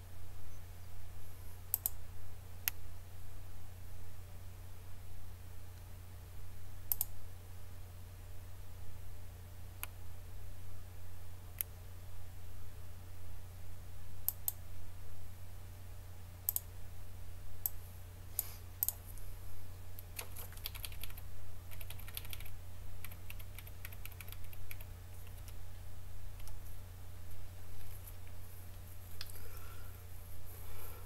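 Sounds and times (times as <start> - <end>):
steady low hum: 0.0 - 31.0
keyboard typing clicks: 6.9 - 7.1, 20.1 - 25.6.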